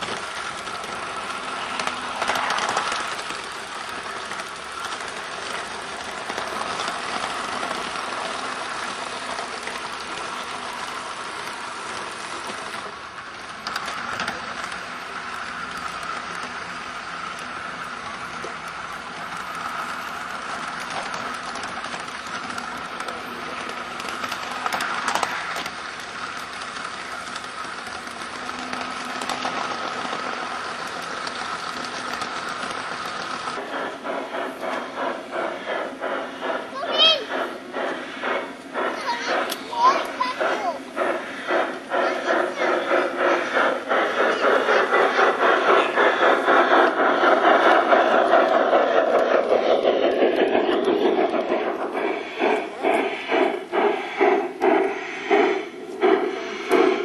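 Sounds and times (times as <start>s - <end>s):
model train wheels rattling on rails: 0.0s - 57.0s
train clatters: 0.0s - 57.0s
steady whine: 33.6s - 57.0s.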